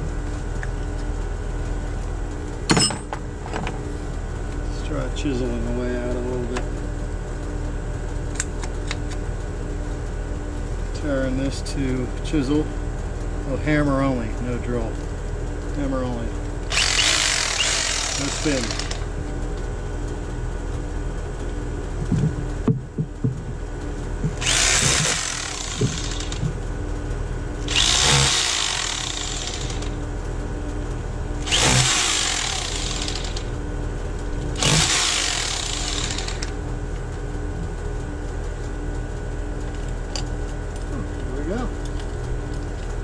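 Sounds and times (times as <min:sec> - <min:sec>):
low hum: 0:00.0 - 0:43.0
hammer drill chiselling block wall: 0:16.7 - 0:19.0, 0:24.4 - 0:26.4, 0:27.7 - 0:29.9, 0:31.4 - 0:33.5, 0:34.6 - 0:36.5.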